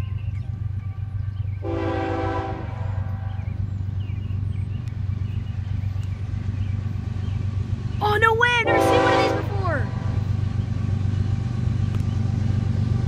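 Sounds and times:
low rumble of train: 0.0s - 13.0s
locomotive air horn blast: 1.6s - 3.4s, 8.6s - 10.3s.

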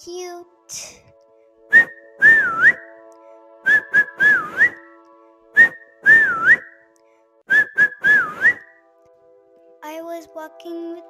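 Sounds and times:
whistled melody: 1.6s - 9.0s.

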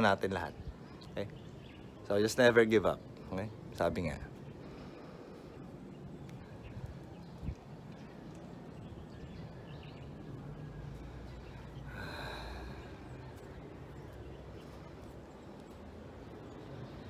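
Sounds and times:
low outdoor rumble: 0.0s - 17.0s
person breathing: 4.5s - 6.0s, 10.8s - 13.6s.

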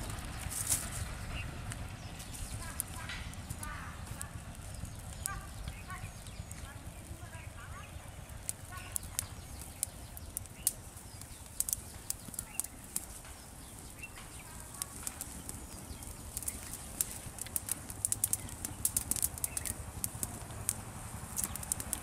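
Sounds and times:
steady low rumble: 0.0s - 22.0s
wood fire crackling: 0.0s - 22.0s.

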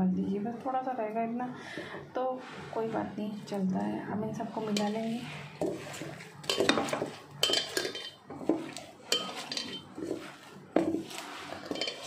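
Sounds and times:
hand squelching soft mixture: 2.4s - 12.0s
metallic rings from bowl: 9.1s - 10.0s, 11.6s - 12.0s.

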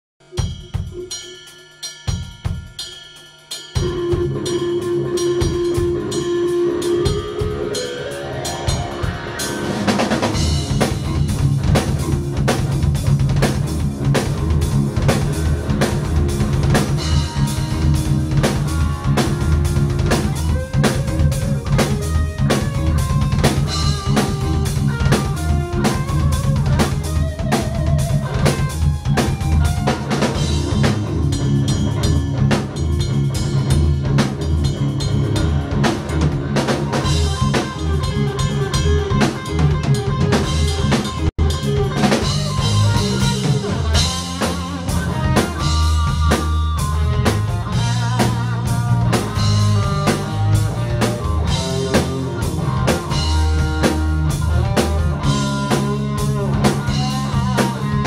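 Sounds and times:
rock band playing: 0.2s - 58.0s
electric guitar slide: 3.8s - 58.0s
drum hits: 8.6s - 58.0s.

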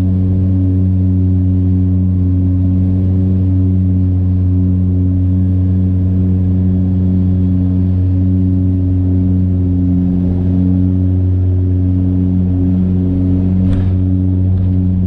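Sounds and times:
low propeller drone: 0.0s - 15.0s.

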